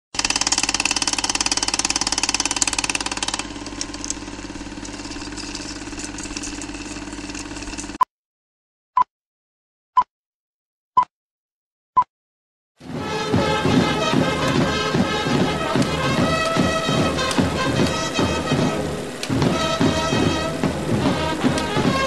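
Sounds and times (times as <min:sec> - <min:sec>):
film projector clicking and humming: 0:00.2 - 0:08.0, 0:13.3 - 0:22.0.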